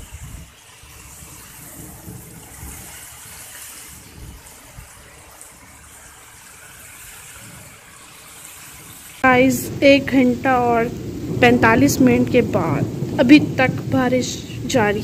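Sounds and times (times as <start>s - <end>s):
heavy rain pouring: 0.0s - 15.0s.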